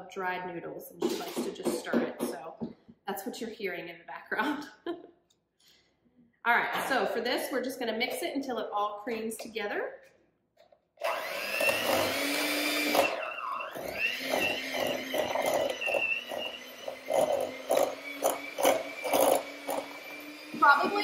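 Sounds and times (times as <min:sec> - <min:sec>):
electric hand mixer whining: 0:11.0 - 0:21.0.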